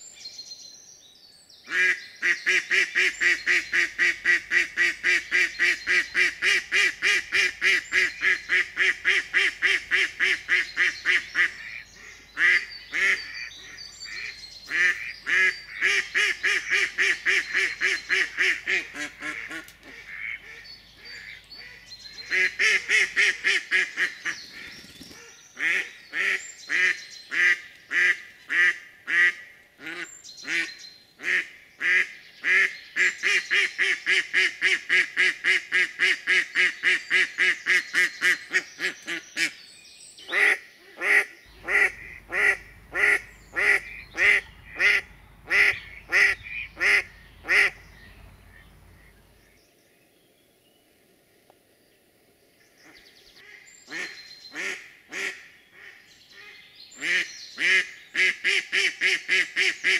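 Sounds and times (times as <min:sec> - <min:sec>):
hen duck quacking loudly: 0:40.4 - 0:47.8.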